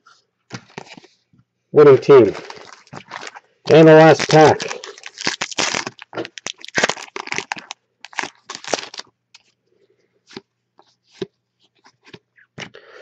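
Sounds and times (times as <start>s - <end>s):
wrapper tearing and crinkling: 2.2s - 9.1s.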